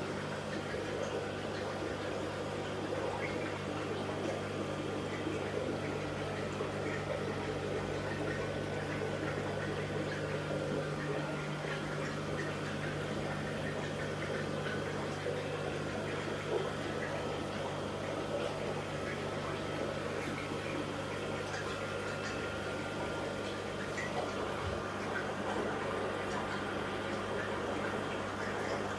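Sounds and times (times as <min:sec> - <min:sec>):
electric hum of equipment: 0:00.0 - 0:28.9
water bubbling and trickling: 0:00.0 - 0:28.9.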